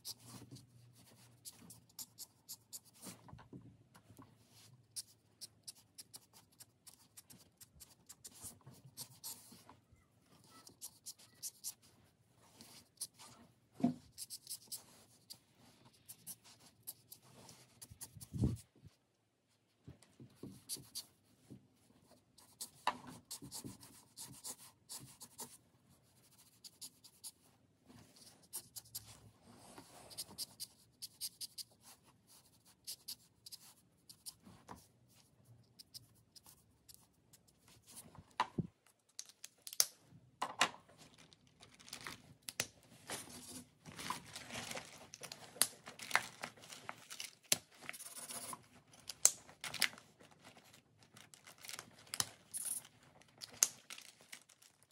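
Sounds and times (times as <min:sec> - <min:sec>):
marker scratching on paper: 0:00.0 - 0:03.2, 0:04.6 - 0:09.6, 0:10.4 - 0:13.3, 0:14.0 - 0:18.6, 0:20.4 - 0:21.1, 0:22.4 - 0:27.4, 0:28.1 - 0:29.1, 0:29.8 - 0:38.0, 0:47.9 - 0:48.6.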